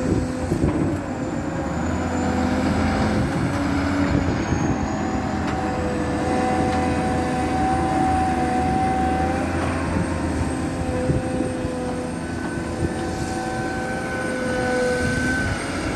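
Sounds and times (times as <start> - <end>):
excavator diesel engine drone: 0.0 - 15.9
high hydraulic whine: 0.0 - 15.9.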